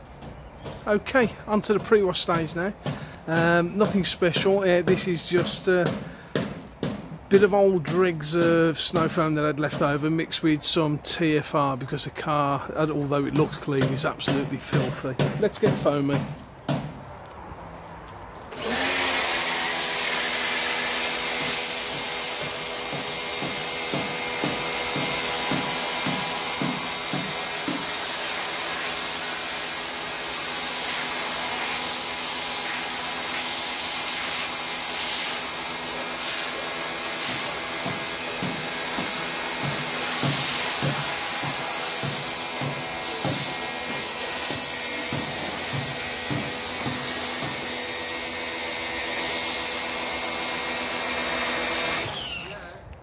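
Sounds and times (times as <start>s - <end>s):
foam lance spraying hiss: 18.4s - 52.6s
pressure washer motor hum: 18.4s - 52.9s.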